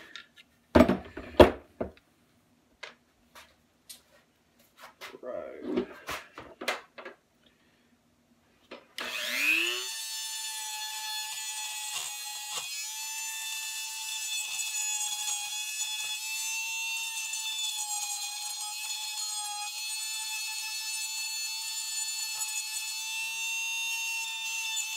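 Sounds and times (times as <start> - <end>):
rotary tool whining: 9.0 - 24.9.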